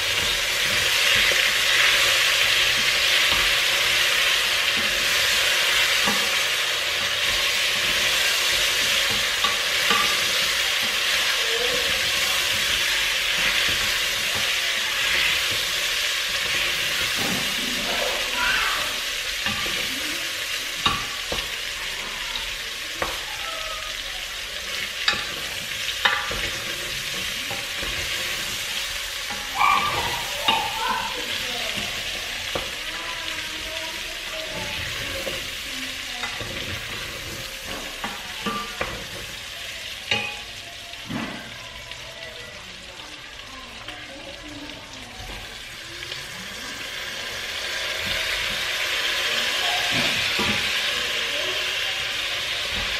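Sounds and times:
wooden spoon knocking and scraping pot: 0.0s - 17.9s, 24.7s - 32.9s, 34.4s - 39.5s
meat sizzling in a pot: 0.0s - 52.9s.

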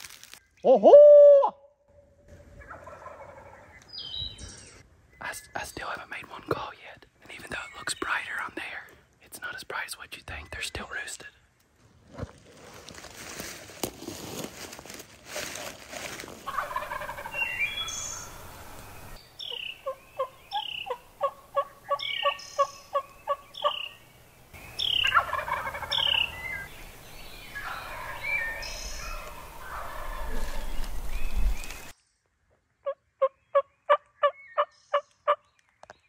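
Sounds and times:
turkeys gobbling: 2.6s - 3.8s, 16.5s - 18.6s, 19.5s - 24.0s, 24.8s - 26.7s, 27.6s - 30.7s
short evenly spaced calls: 16.5s - 30.3s.

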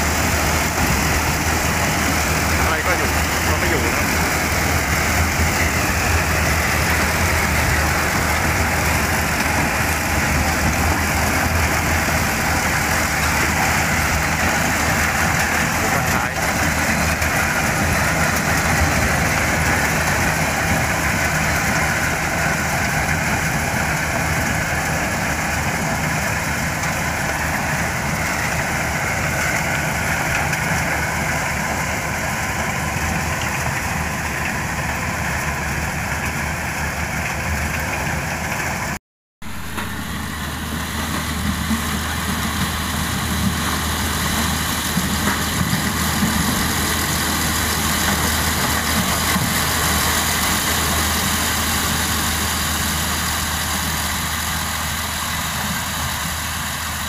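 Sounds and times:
threshing machinery rushing: 0.0s - 22.0s
combine harvester diesel drone: 0.0s - 57.0s.

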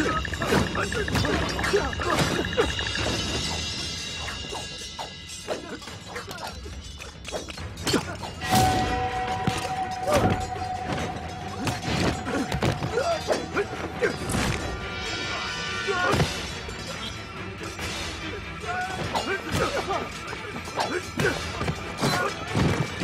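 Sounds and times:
dramatic music with held note: 7.5s - 22.5s.

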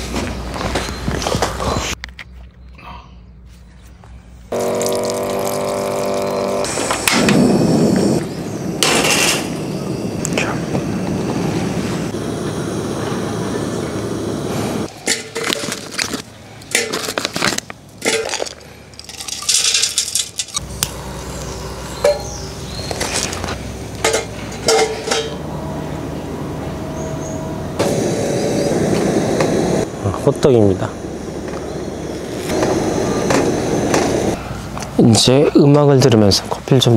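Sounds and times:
metal cookware clinking: 18.0s - 20.6s, 22.0s - 22.4s, 24.0s - 25.4s.

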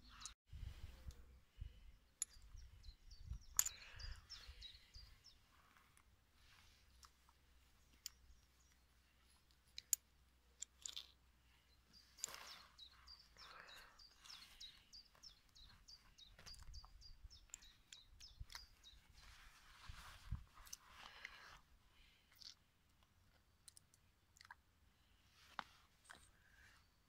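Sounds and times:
small bird chirping: 0.0s - 0.4s, 1.6s - 10.0s, 10.6s - 21.4s.

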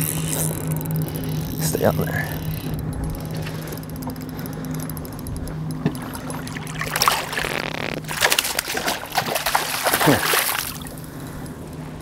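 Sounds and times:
boat motor humming: 0.0s - 12.0s
fish splashing at surface: 6.1s - 10.8s.

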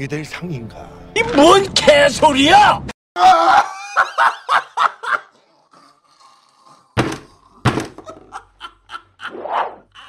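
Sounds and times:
heavy thuds: 7.0s - 8.2s.

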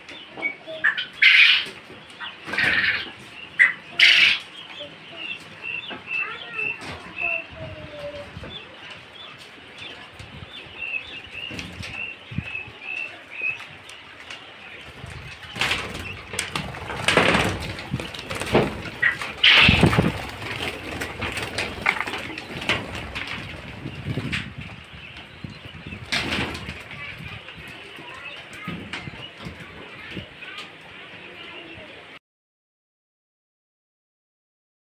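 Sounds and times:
quail peeping: 0.0s - 32.2s
wings flapping: 1.2s - 4.5s, 11.0s - 30.3s.

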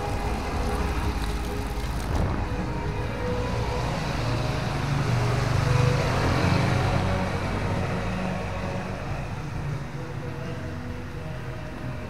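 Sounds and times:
tyres hissing on wet road: 0.0s - 9.4s
motorcycle engines: 0.0s - 12.0s.

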